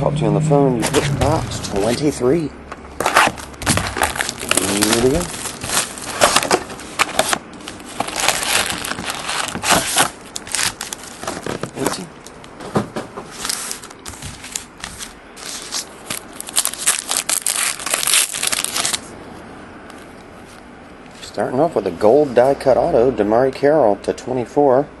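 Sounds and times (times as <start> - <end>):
foil pack tearing open: 3.0 - 12.0, 13.3 - 19.1
plastic wrapping crinkling: 3.0 - 12.1, 13.3 - 19.1.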